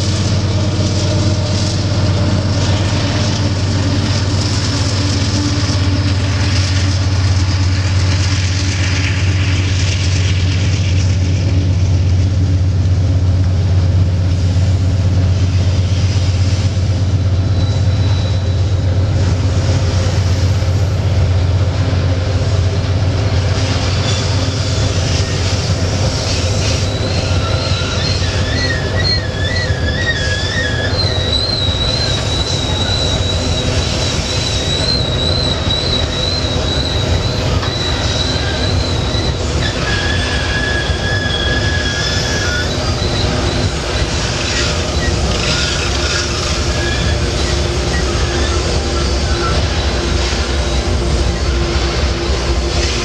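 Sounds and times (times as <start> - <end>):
freight train rumbling: 0.0 - 53.0
high-pitched wheel squeal: 17.4 - 18.9, 23.5 - 52.2.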